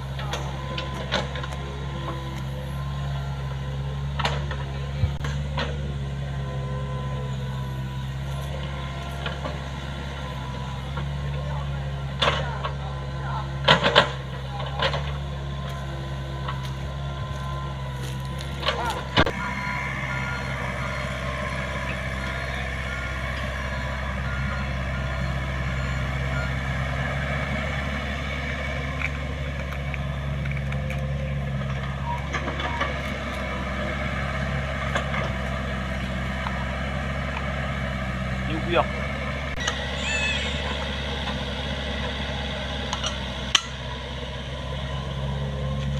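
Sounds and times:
excavator diesel engine running: 0.0 - 45.9
short beeps: 16.7 - 27.8.

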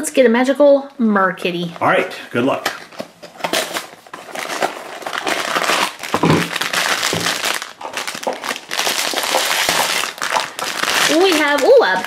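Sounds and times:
foil bag crinkling: 2.8 - 12.0.

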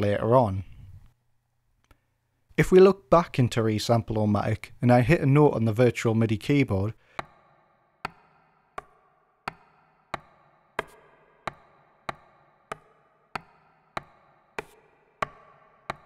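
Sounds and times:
vegetables being chopped: 8.1 - 16.0.

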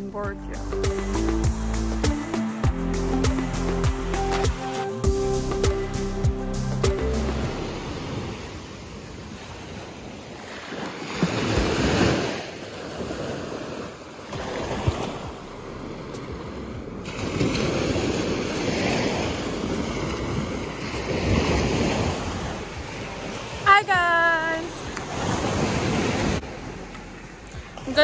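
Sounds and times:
small waves breaking on beach: 7.4 - 28.0.

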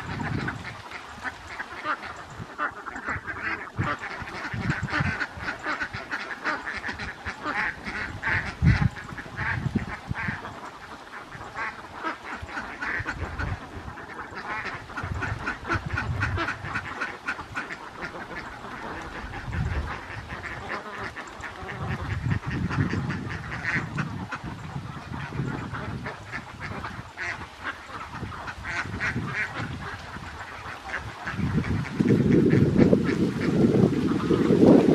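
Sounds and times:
ducks quacking: 0.0 - 34.9.

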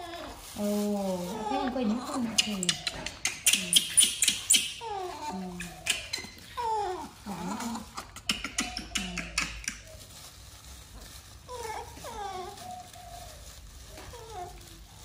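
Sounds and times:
plastic bag crinkling: 0.0 - 15.0
baby monkey crying: 1.2 - 9.0.

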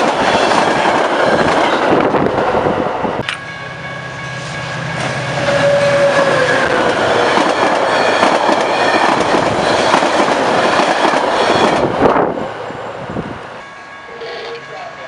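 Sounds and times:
train passing at speed: 0.0 - 15.0
train wheels clickety-clack: 6.6 - 12.0.

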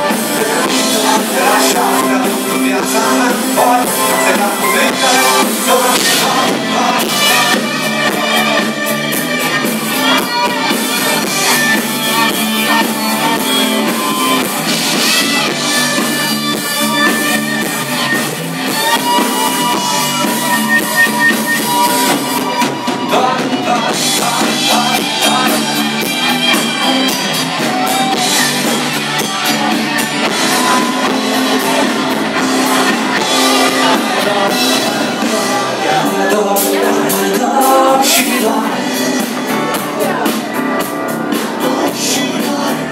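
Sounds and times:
drum kit with cymbal beat: 0.0 - 42.9
person singing: 0.0 - 42.9.

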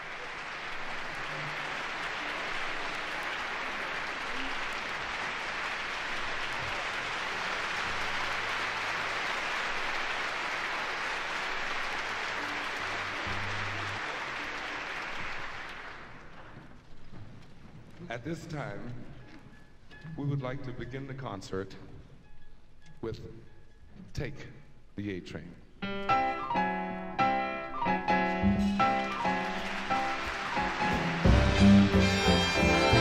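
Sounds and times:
audience applauding: 0.0 - 16.8, 27.8 - 33.0.

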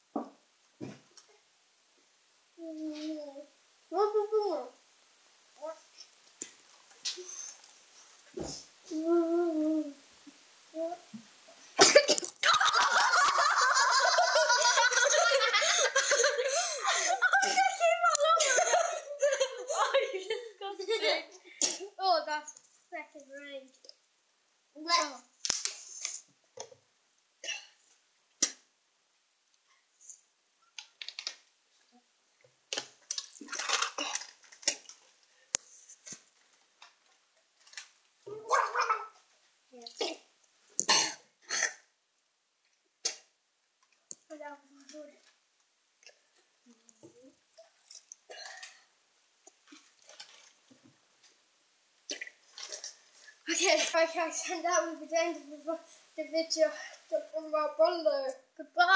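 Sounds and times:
cough-like splutter: 11.8 - 12.4, 27.4 - 27.8, 33.4 - 34.9, 40.0 - 41.9, 48.3 - 48.8, 52.1 - 53.0
child laughing: 11.8 - 21.4, 38.3 - 39.2
person spitting wet mouthfuls: 43.0 - 43.3, 52.1 - 53.0.

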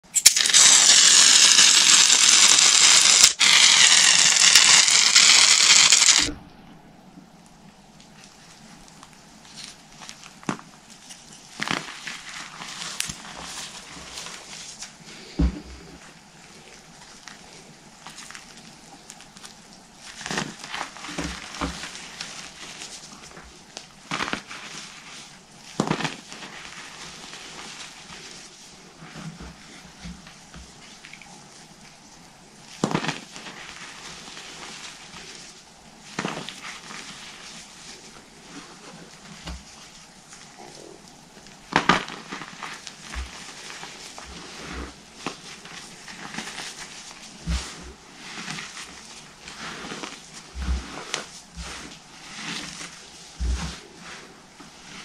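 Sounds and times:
aerosol can spraying foam: 0.2 - 6.3
chalk crunching in foam: 41.8 - 55.0.

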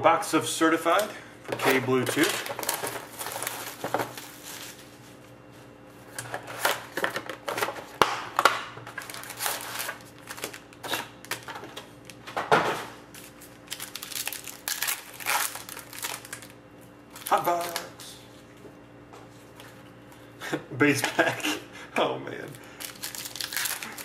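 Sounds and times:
card packs rustling and crinkling: 0.9 - 5.3, 6.0 - 12.2, 13.1 - 18.2, 22.5 - 24.0.

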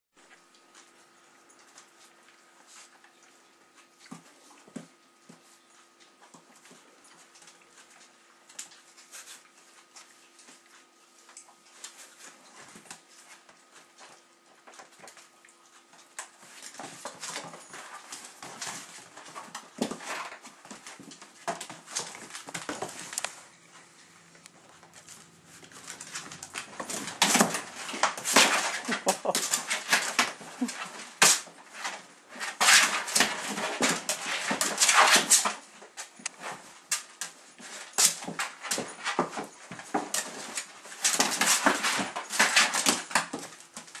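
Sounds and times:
dogs scuffling: 0.2 - 44.0.

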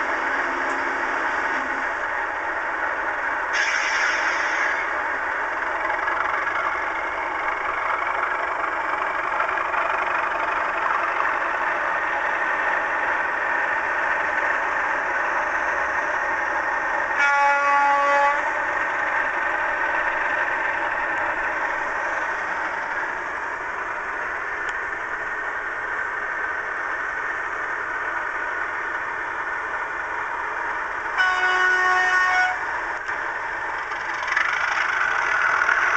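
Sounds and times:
diesel engine through small speaker: 4.4 - 35.9
locomotive horn blast: 17.1 - 18.7, 31.2 - 32.7.

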